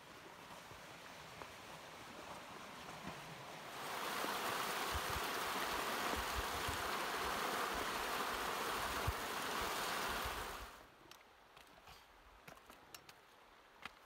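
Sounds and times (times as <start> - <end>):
flowing creek water: 0.0 - 11.0.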